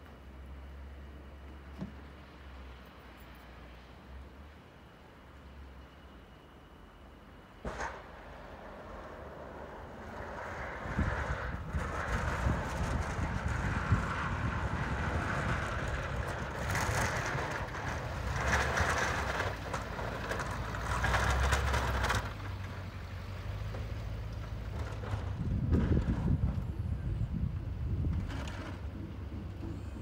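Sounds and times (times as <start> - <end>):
truck engine rumble: 0.0 - 30.0
snowplow blade scraping snow: 7.6 - 30.0.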